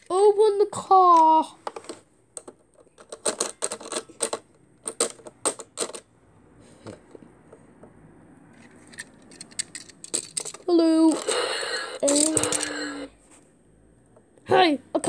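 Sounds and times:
plastic toy pieces clicking: 0:01.1 - 0:06.1, 0:08.9 - 0:11.3, 0:12.0 - 0:12.9.

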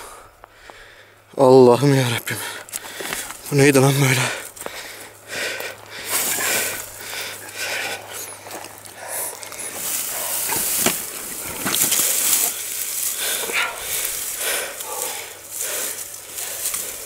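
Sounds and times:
hard quick breathing: 0:00.0 - 0:01.3, 0:02.3 - 0:03.4, 0:04.0 - 0:17.0
rustling in dry brush: 0:04.4 - 0:17.0.

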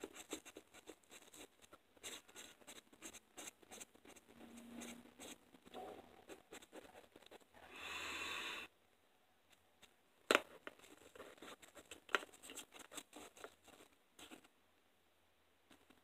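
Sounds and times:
pen scratching on paper: 0:00.0 - 0:07.6, 0:10.6 - 0:14.5
small scratches and taps: 0:09.5 - 0:14.5.

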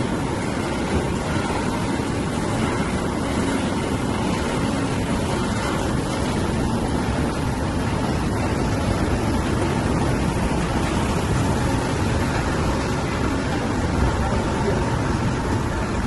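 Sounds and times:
oil presses running: 0:00.0 - 0:16.0.

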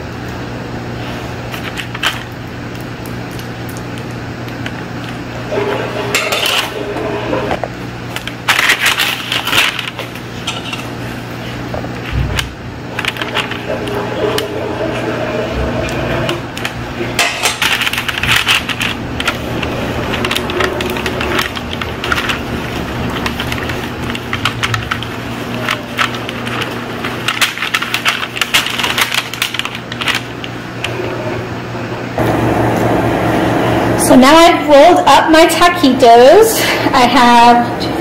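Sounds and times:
steady low hum: 0:00.0 - 0:38.0
parchment paper crinkling: 0:08.1 - 0:15.1, 0:16.5 - 0:30.9.

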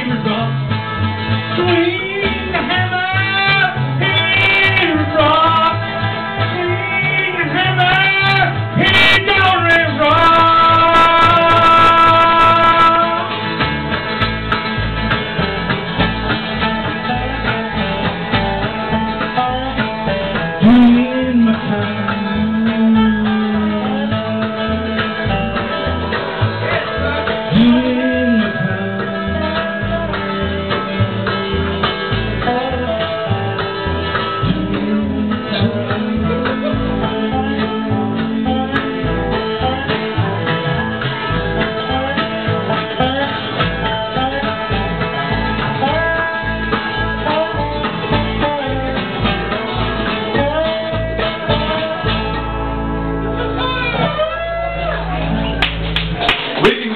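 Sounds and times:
acoustic guitar: 0:00.0 - 0:56.9
mandolin: 0:00.0 - 0:56.9
upright bass plucking: 0:00.0 - 0:56.9
voices singing: 0:20.5 - 0:31.4, 0:34.3 - 0:55.6.

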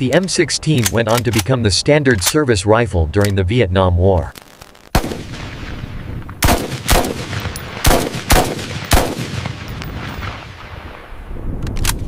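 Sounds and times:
rifle shots with echo: 0:04.9 - 0:11.0.

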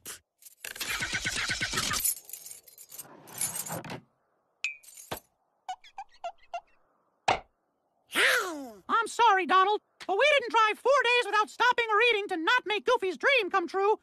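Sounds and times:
clinks and clatter: 0:00.4 - 0:03.9.

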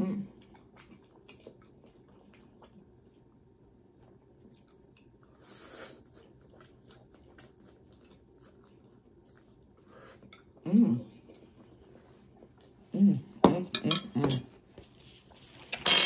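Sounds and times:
quiet chewing: 0:00.2 - 0:13.0.

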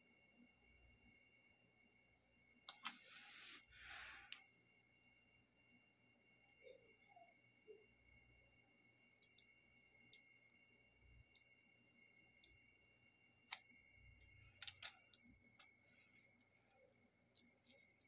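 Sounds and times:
faint high whine: 0:00.0 - 0:18.0
small clicks and taps: 0:13.4 - 0:18.0.

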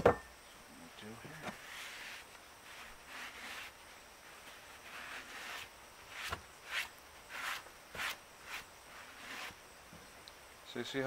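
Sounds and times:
gritty scraping in skillet: 0:01.5 - 0:09.7.

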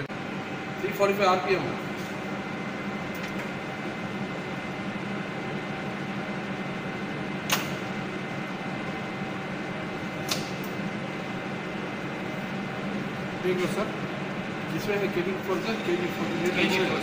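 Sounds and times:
lathe humming: 0:00.0 - 0:17.0.

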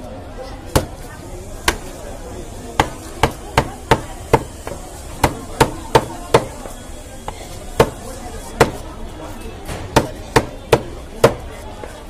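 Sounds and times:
knife chopping fish on wooden block: 0:00.7 - 0:00.9, 0:02.8 - 0:06.5.

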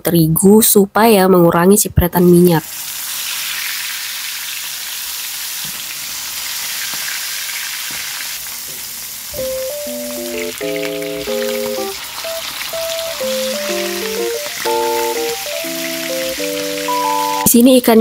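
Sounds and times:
fish sizzling in hot oil: 0:02.6 - 0:09.3, 0:10.3 - 0:14.0, 0:14.7 - 0:17.4
light background music: 0:09.4 - 0:18.0.

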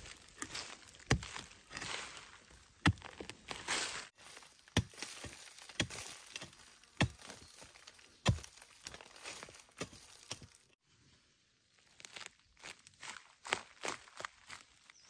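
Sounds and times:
digging tool striking soil: 0:00.0 - 0:10.5
dry leaves and earth rustling: 0:00.0 - 0:15.0.

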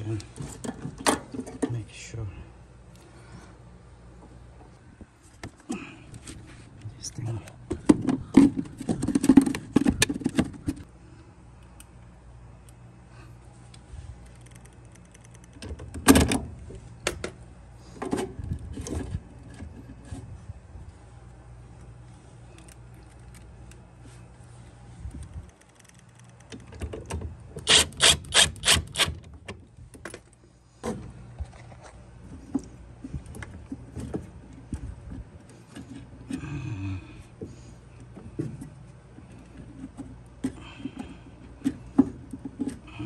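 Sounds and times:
small clicks and rubs: 0:13.7 - 0:15.7, 0:21.8 - 0:26.8.

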